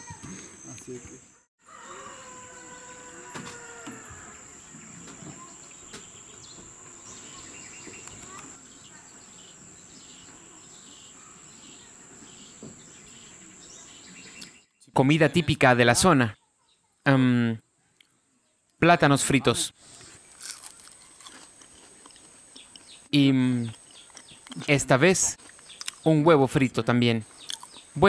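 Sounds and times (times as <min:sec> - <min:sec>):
insect chirps: 0:00.0 - 0:14.7.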